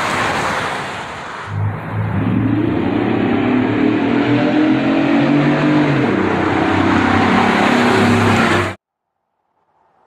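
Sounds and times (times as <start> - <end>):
loud car exhaust: 1.5 - 8.8.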